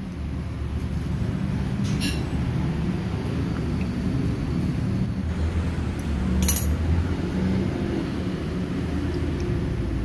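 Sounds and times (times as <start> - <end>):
metallic clink: 6.4 - 6.8.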